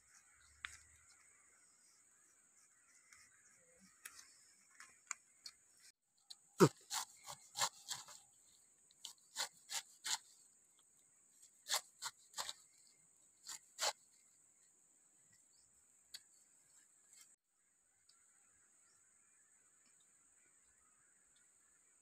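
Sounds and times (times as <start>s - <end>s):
knife slicing pineapple: 6.6s - 8.2s, 9.0s - 10.3s, 11.6s - 12.8s, 13.5s - 14.0s.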